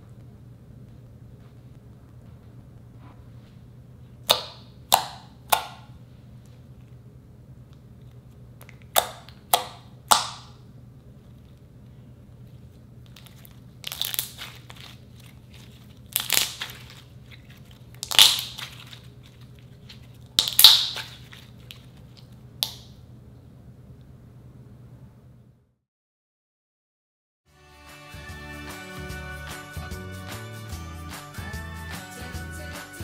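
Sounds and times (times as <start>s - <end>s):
slime popping and squelching: 4.2s - 5.9s, 8.6s - 10.6s, 13.1s - 22.9s.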